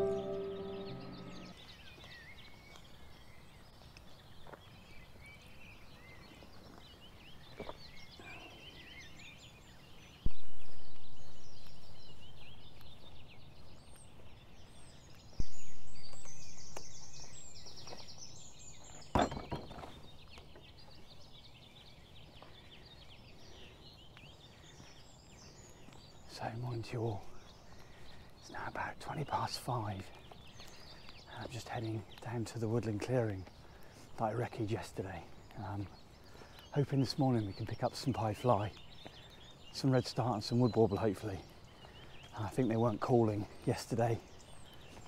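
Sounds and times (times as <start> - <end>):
loud harsh bird call: 0.0 - 1.6
songbirds chirping: 0.0 - 45.0
low thumps: 10.3 - 11.9.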